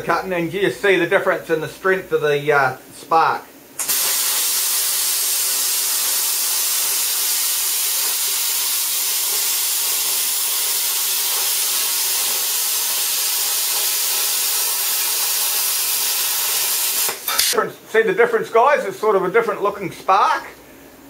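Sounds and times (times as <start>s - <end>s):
plasma cutter hissing: 3.8s - 17.6s.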